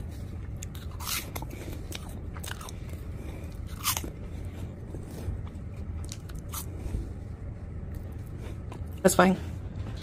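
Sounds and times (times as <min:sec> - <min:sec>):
cheese puffs crunching: 0:00.0 - 0:06.8
steady low hum: 0:00.0 - 0:10.0.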